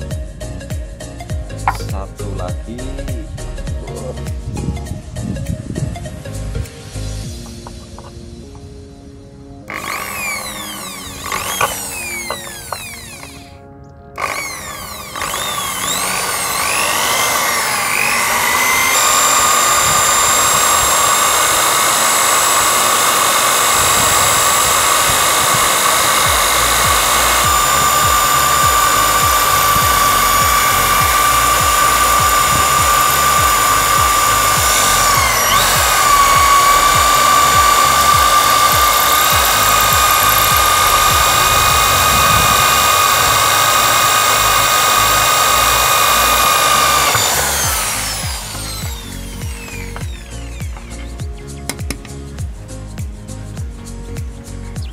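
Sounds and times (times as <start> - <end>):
drill whining into metal: 1.2 - 2.0, 9.7 - 13.6, 14.2 - 52.1.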